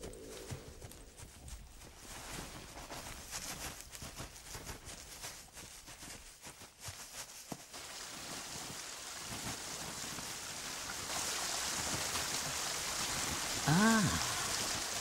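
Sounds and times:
stream running over rocks: 7.2 - 15.0.

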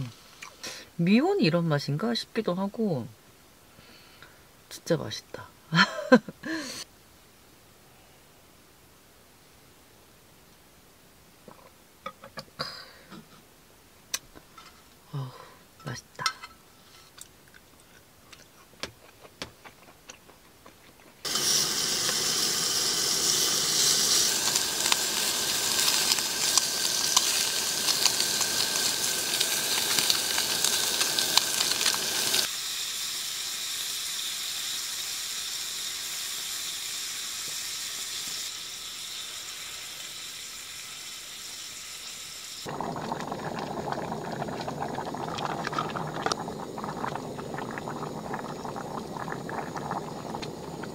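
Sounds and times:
stew bubbling in a pot: 21.2 - 32.5, 42.6 - 50.9
beef sizzling in a hot pan: 21.2 - 50.9.

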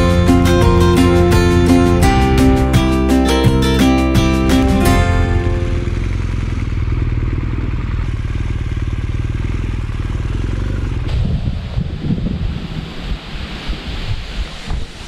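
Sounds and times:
wind noise on microphone: 0.0 - 3.7, 10.9 - 15.0
motorcycle engine low hum: 0.0 - 13.1.

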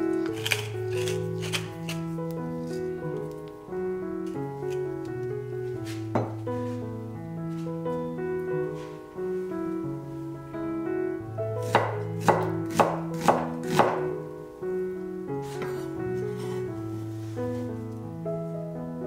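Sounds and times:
soft background music: 0.0 - 19.0
knife chopping on wooden board: 11.6 - 14.0.

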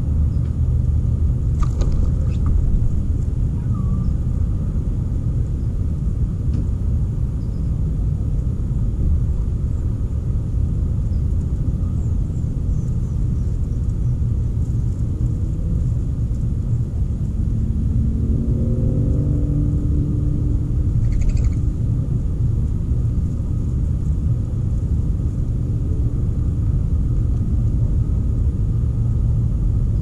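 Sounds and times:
low outdoor rumble: 0.0 - 30.0
faint bird chirps: 3.6 - 4.2, 21.0 - 21.6.

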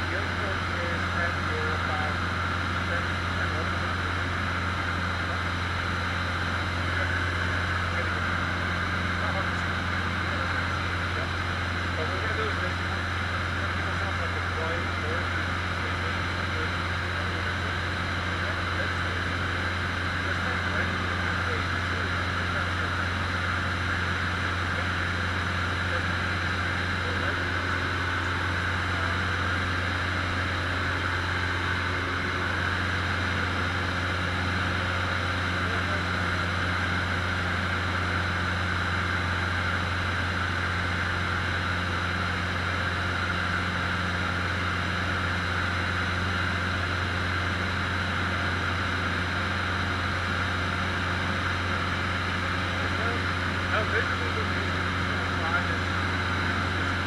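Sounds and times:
propeller plane engine droning: 0.0 - 57.0.

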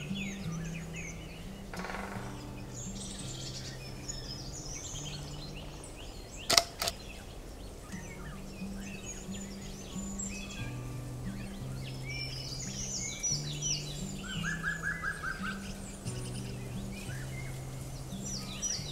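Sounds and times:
forest birds chirping and singing: 0.0 - 18.9
soft background music: 0.0 - 18.9
sharp clicks: 6.5 - 7.0.

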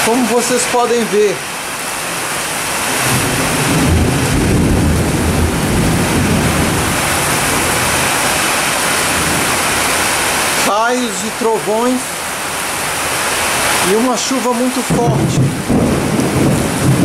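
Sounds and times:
heavy rain pouring: 0.0 - 17.0
low rumble of thunder: 3.0 - 8.0, 14.9 - 17.0.

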